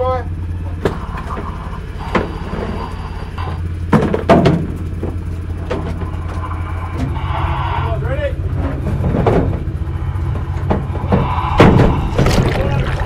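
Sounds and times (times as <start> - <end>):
motor humming low: 0.0 - 13.0
equipment knocking and clattering: 3.9 - 6.1, 8.6 - 9.7.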